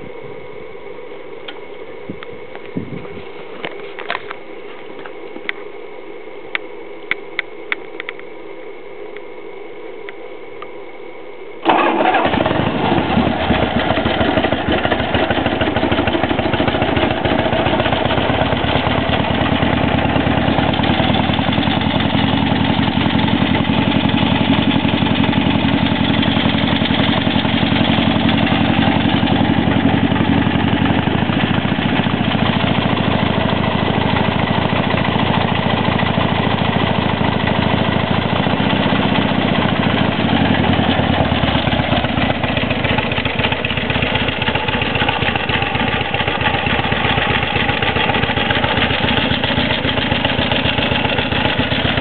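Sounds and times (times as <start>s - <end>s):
motorcycle engine idling: 11.6s - 52.0s.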